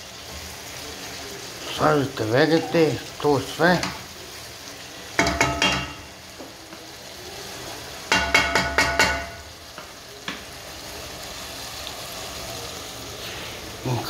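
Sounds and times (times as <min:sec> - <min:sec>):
meat sizzling in pot: 0:00.0 - 0:14.0
wooden spoon clacking against pot: 0:05.2 - 0:06.2, 0:08.1 - 0:10.5.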